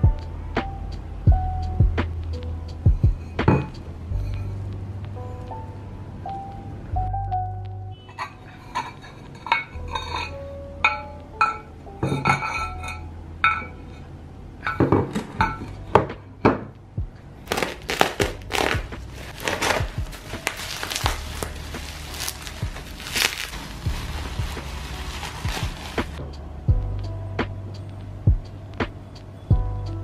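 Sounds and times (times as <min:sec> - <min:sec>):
stoneware plates clinking: 0:08.1 - 0:13.9, 0:14.6 - 0:15.8
bubble wrap crinkling: 0:17.4 - 0:26.2.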